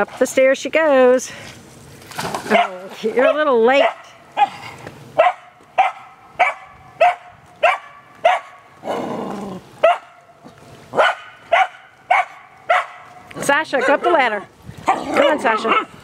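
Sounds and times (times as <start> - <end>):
dog barking: 2.5 - 4.6, 5.2 - 8.6, 9.8 - 10.2, 11.0 - 13.1, 15.0 - 15.9.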